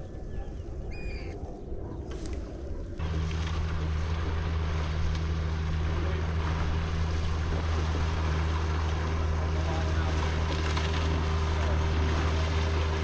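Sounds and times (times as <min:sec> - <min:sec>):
wind on microphone: 0:00.0 - 0:04.8
outboard motor drone: 0:00.0 - 0:13.0.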